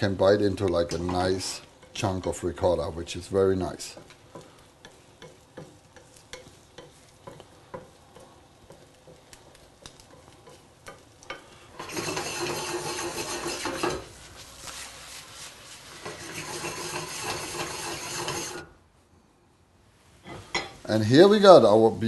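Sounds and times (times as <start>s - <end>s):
egg sizzling: 0.0s - 18.8s
spatula scraping a pan: 3.8s - 18.8s.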